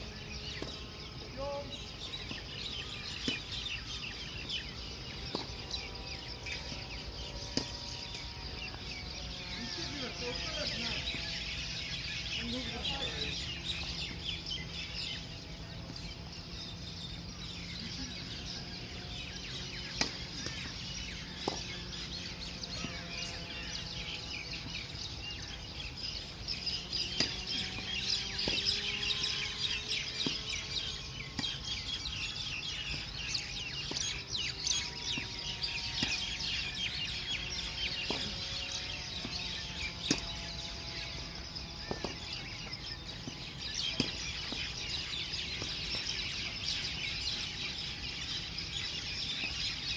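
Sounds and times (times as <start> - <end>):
birds chirping: 0.0 - 49.9
tennis ball struck by racket: 19.9 - 20.6, 27.1 - 27.7, 43.9 - 44.6.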